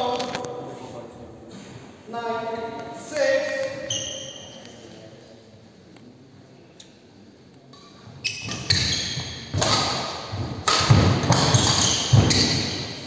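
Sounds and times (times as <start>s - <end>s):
rackets hitting shuttlecock: 7.8s - 13.0s.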